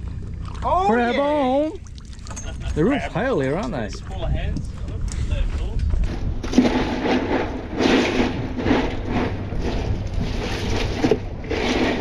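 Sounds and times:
ice crunching and scraping: 4.7 - 12.0
hand rummaging through ice: 6.4 - 12.0.

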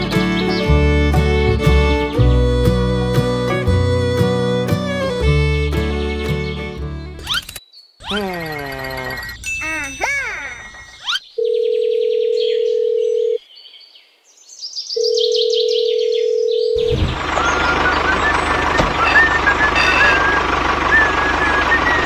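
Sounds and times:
birds chirping: 0.0 - 1.6, 5.1 - 22.0
tractor engine running: 0.0 - 7.6, 16.8 - 22.0
telephone ringback beeps: 9.1 - 13.4, 15.0 - 20.4.

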